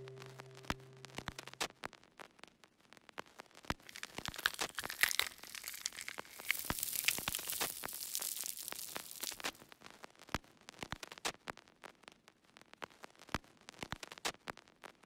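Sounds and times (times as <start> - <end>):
low held drone: 0.0 - 1.6
hissing crackle: 3.8 - 9.6.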